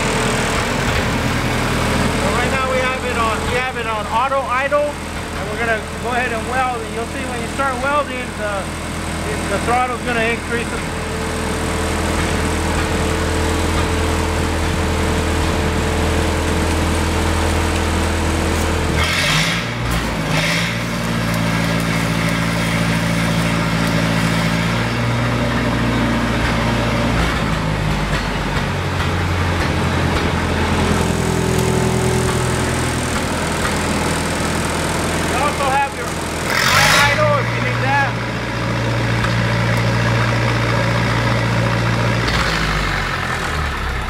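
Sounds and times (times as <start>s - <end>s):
generator engine running: 0.0s - 44.0s
welding arc crackling: 14.4s - 26.3s.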